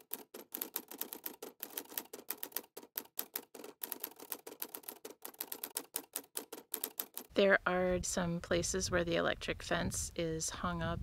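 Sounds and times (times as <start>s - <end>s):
typewriter key clacks: 0.0s - 7.3s.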